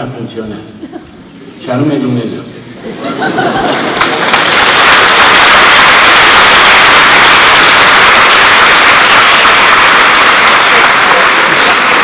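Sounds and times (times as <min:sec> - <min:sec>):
audience applause: 0:03.3 - 0:12.0.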